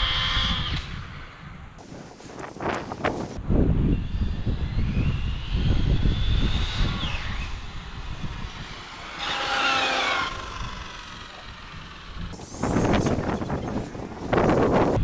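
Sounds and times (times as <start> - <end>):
wind buffeting microphone: 0.0 - 15.0
electric motor whining: 4.0 - 15.0.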